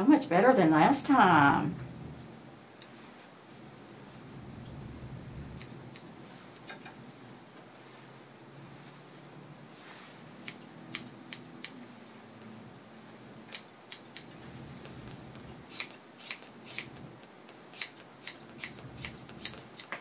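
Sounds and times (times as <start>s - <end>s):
shears snipping fur: 10.4s - 11.9s, 13.5s - 14.4s, 15.1s - 17.0s, 17.7s - 20.0s.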